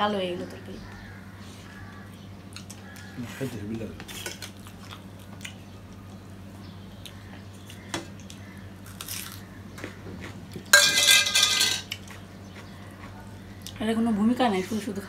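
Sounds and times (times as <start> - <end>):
faint steady hum: 0.0 - 15.0
hands mixing food on plates: 2.4 - 5.6, 9.8 - 13.7.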